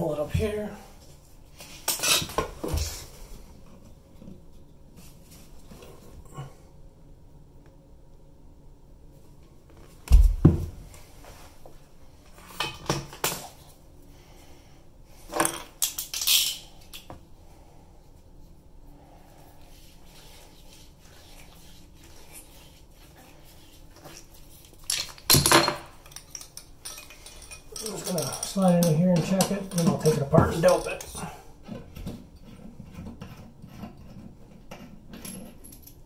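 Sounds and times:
metal clinks and clatter: 0:24.8 - 0:31.3, 0:35.1 - 0:36.0.

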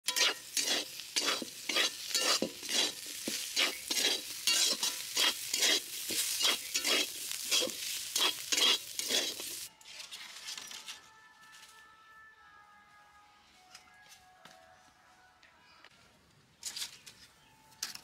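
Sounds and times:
metal spatula scraping a pan: 0:00.0 - 0:11.0.

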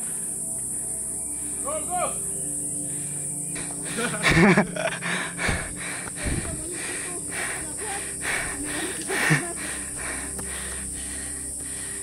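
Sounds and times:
person breathing heavily: 0:00.0 - 0:01.7, 0:02.4 - 0:12.0
high-pitched insect drone: 0:00.0 - 0:12.0
faint voices: 0:05.3 - 0:10.4.

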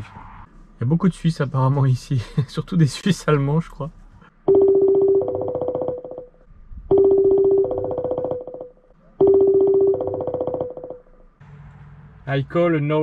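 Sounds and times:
telephone ringing: 0:04.5 - 0:11.1.

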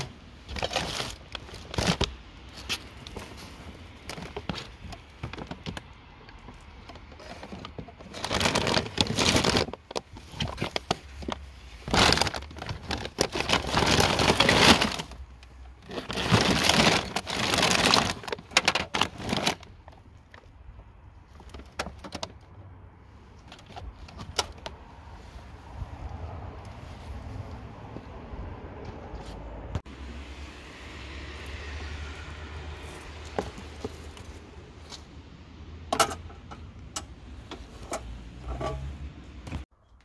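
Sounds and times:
plastic bags crinkling: 0:00.0 - 0:20.5.

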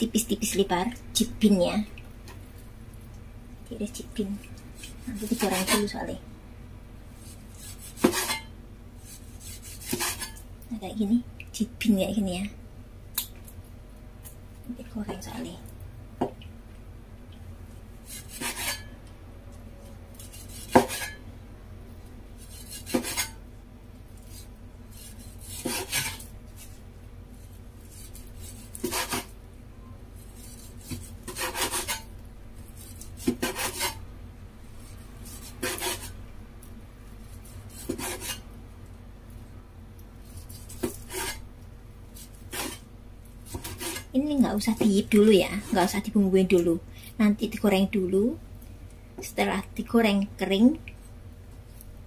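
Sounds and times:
cleaver slicing meat: 0:07.2 - 0:10.4, 0:18.0 - 0:18.9, 0:20.1 - 0:21.2, 0:22.4 - 0:23.4, 0:24.2 - 0:26.7, 0:27.8 - 0:29.3, 0:30.2 - 0:34.0, 0:35.2 - 0:36.2, 0:37.2 - 0:38.4, 0:42.2 - 0:42.8, 0:43.5 - 0:44.1.

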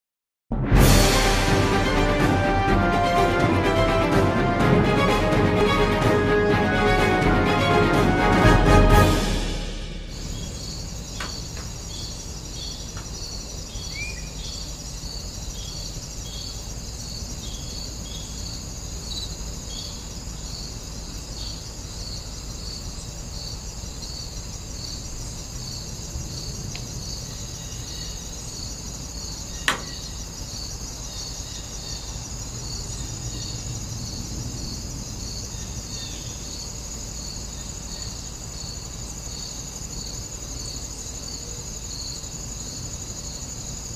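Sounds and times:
insects chirping: 0:08.8 - 0:43.9
sharp click: 0:29.7 - 0:30.0.

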